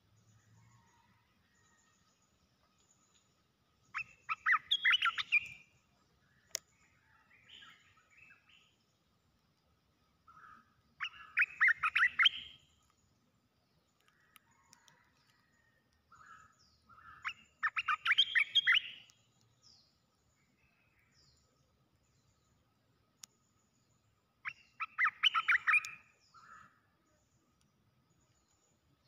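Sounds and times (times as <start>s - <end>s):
soft bird calls: 0.0s - 9.4s, 10.2s - 29.0s
bird song phrases: 0.0s - 29.0s.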